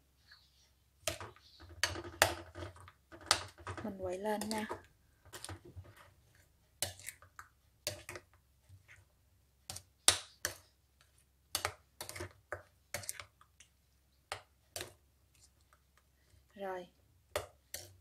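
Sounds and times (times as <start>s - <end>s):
spoon stirring in a bowl: 1.0s - 16.6s, 17.3s - 18.0s.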